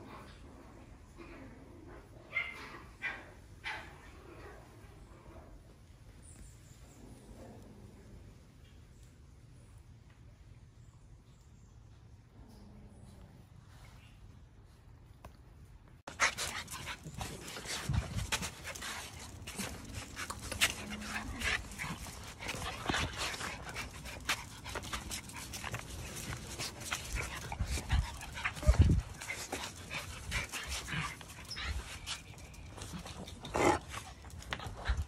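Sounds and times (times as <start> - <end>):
puppies panting and snuffling: 16.1 - 35.0.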